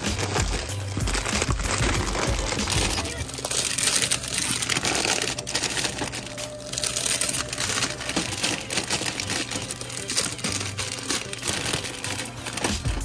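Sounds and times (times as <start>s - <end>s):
plastic snack bags crinkling: 0.0s - 13.0s.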